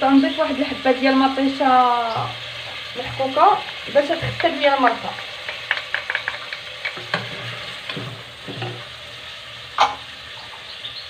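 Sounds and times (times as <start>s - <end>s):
food sizzling in oil: 0.0s - 11.0s.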